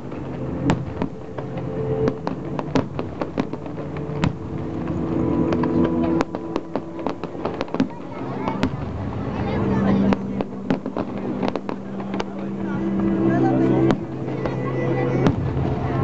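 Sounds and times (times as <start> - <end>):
fireworks bursting: 0.0 - 16.0
low steady drone: 0.0 - 16.0.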